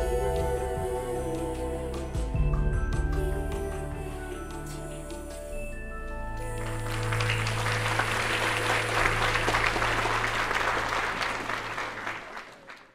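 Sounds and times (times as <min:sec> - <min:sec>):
audience applauding: 0:06.6 - 0:12.9.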